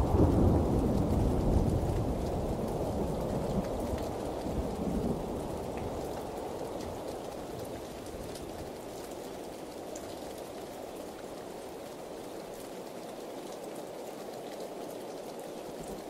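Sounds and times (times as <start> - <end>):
thunder rumble: 0.0 - 6.0
faint raindrop ticks: 0.0 - 16.0
steady rain hiss: 0.0 - 16.0.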